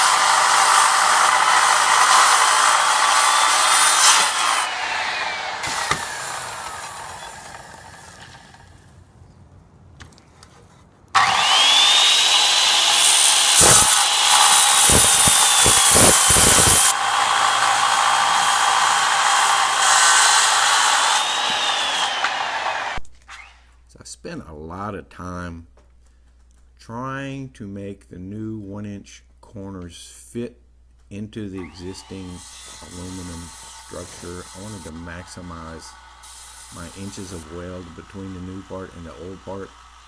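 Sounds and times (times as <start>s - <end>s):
circular saw cutting aluminum: 0.0s - 8.7s, 11.2s - 23.0s, 31.6s - 40.0s.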